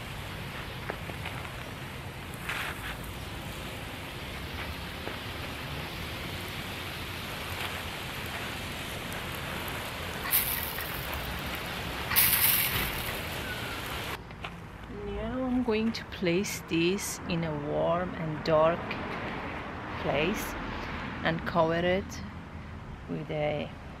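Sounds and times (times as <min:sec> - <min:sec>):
water spray pattering on soil: 0:00.4 - 0:03.7, 0:04.4 - 0:14.2
short loud hiss: 0:12.1 - 0:14.1.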